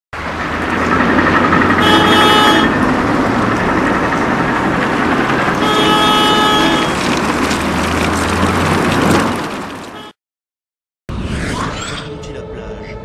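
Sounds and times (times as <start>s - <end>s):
road traffic hum: 0.2s - 10.2s
vehicle horn: 1.8s - 2.8s, 5.6s - 7.0s, 10.0s - 10.2s.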